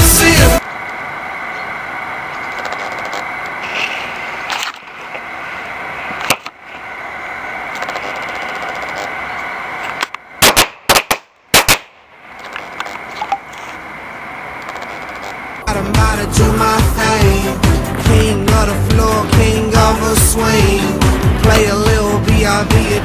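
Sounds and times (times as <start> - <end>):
burning fuse hissing: 2.4 - 10.0
sharp crack: 6.2 - 6.6, 7.7 - 9.2, 9.9 - 13.2.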